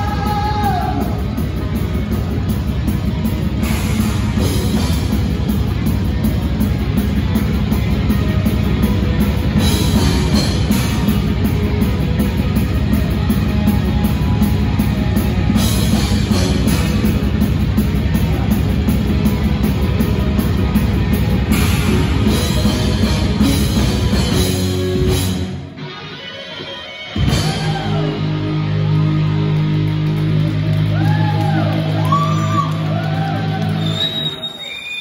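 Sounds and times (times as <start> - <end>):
heavy metal band playing: 0.0 - 33.8.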